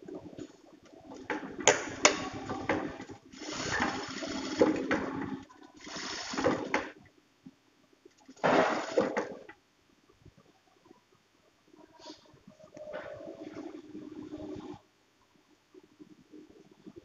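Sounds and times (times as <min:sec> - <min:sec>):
faint steady hum: 0:00.0 - 0:17.0
sewing machine running: 0:01.7 - 0:06.9, 0:08.5 - 0:09.4.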